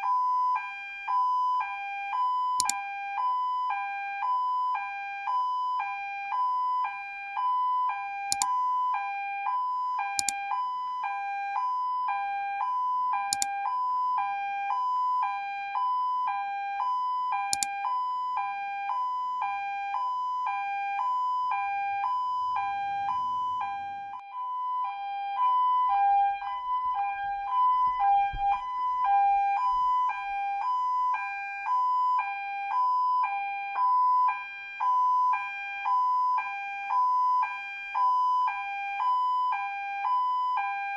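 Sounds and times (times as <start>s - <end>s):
toy siren hee-haw: 2.2s - 3.0s.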